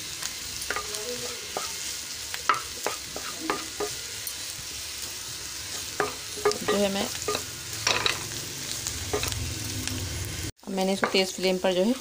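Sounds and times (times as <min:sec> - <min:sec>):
food sizzling in a pan: 0:00.0 - 0:12.0
spatula scraping a pan: 0:02.5 - 0:04.0, 0:11.1 - 0:12.0.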